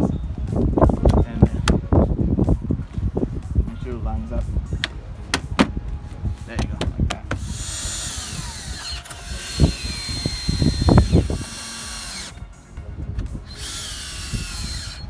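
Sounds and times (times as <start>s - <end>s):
cordless drill motor whine: 7.4s - 12.4s, 13.4s - 15.0s.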